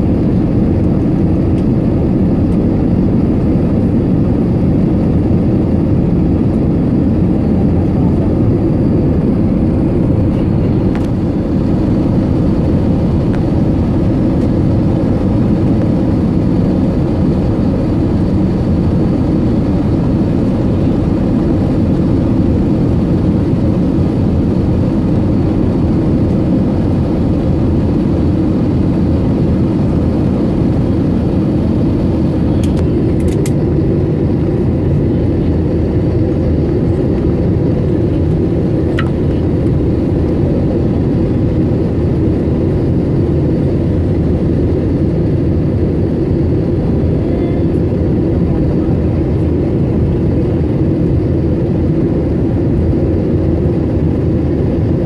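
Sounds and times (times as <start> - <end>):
aircraft cabin engine rumble: 0.0 - 55.0.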